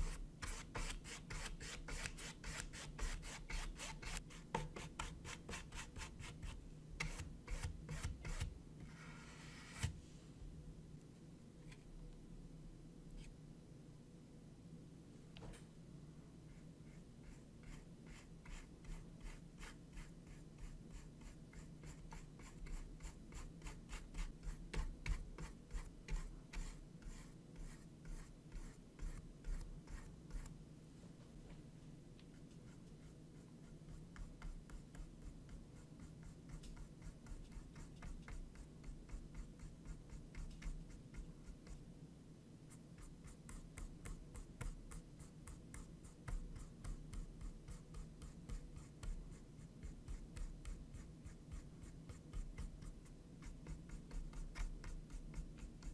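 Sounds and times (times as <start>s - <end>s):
paintbrush scratching on canvas: 0.0s - 9.9s, 16.8s - 30.5s.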